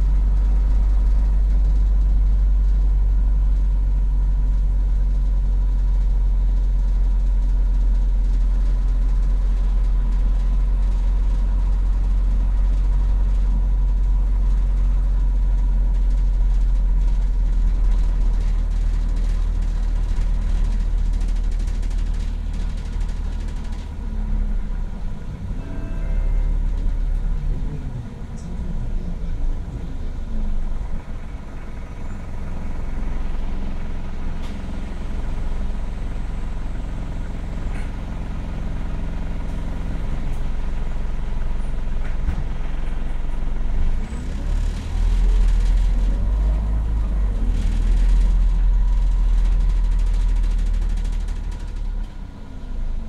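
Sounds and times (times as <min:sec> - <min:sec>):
bus engine running: 0:00.0 - 0:53.0
thin steady whine: 0:25.4 - 0:37.6.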